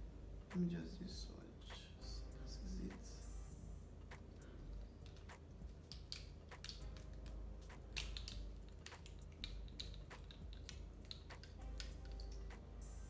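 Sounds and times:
low steady hum: 0:00.0 - 0:13.0
plastic tubes clicking and tapping: 0:05.0 - 0:12.6.

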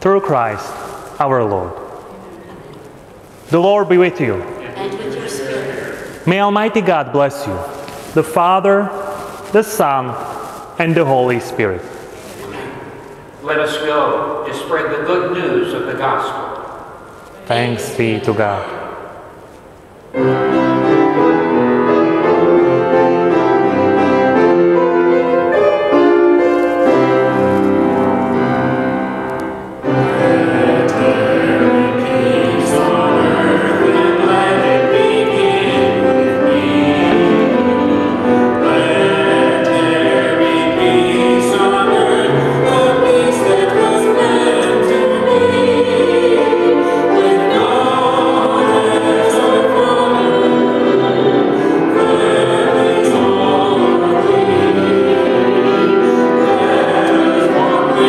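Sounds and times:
hymn on piano: 0:00.0 - 0:19.4, 0:20.1 - 0:58.0
voices singing: 0:00.1 - 0:16.5, 0:29.8 - 0:58.0.

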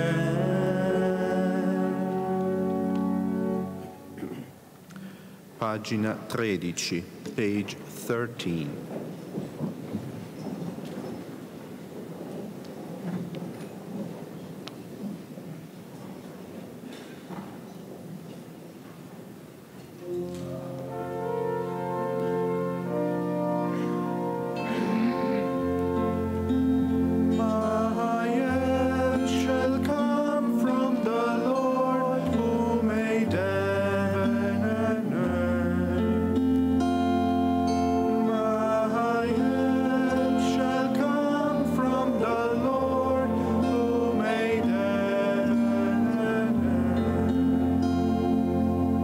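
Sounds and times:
instrumental accompaniment: 0:00.0 - 0:05.0, 0:20.0 - 0:49.0
organ playing slow chords: 0:00.0 - 0:05.4, 0:20.0 - 0:49.0
slow sacred singing: 0:00.0 - 0:06.0, 0:20.0 - 0:49.0.

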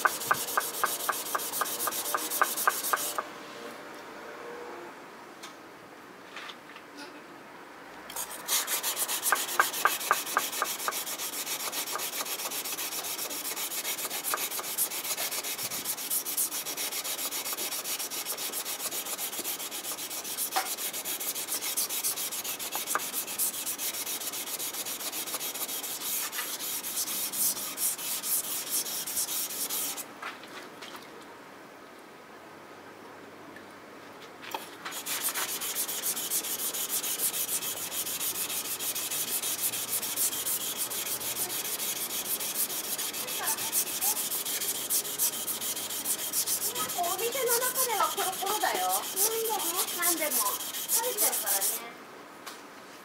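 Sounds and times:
knife rasping on whetstone: 0:00.0 - 0:03.2, 0:08.1 - 0:30.0, 0:34.9 - 0:51.8.

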